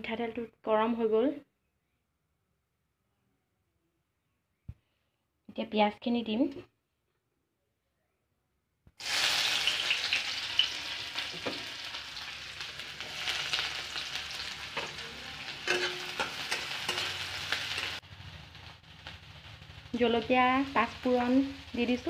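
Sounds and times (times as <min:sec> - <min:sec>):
onions sizzling in oil: 0:09.0 - 0:22.0
spoon clinking against pan: 0:15.6 - 0:17.2.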